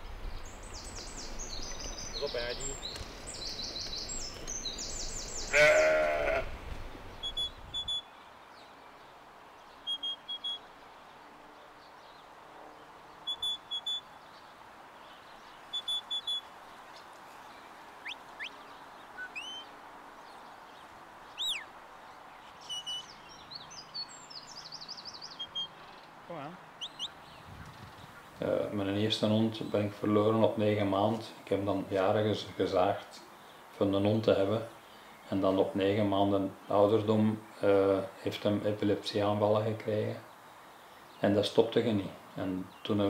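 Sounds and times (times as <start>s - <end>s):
faint steady hiss: 0.0s - 43.0s
sheep bleating: 5.5s - 6.5s.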